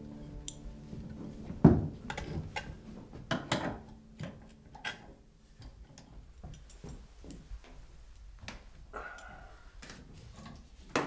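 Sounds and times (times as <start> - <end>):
irregular clicks and knocks: 1.4 - 8.7.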